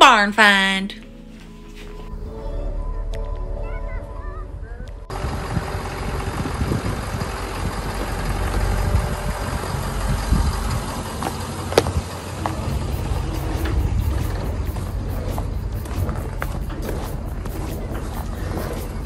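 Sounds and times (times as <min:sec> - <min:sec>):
vehicle engine rumbling: 0:01.0 - 0:19.0.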